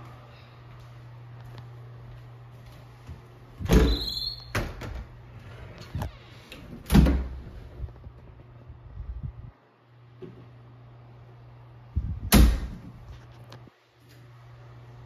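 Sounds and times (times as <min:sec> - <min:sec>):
door squeak: 0:03.6 - 0:04.9
low steady hum: 0:04.7 - 0:15.0.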